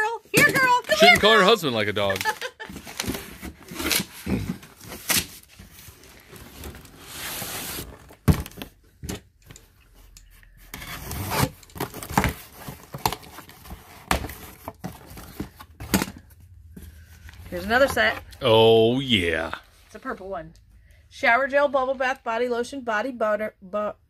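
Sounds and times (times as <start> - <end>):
cardboard box scraping: 2.2 - 8.2, 10.6 - 16.2.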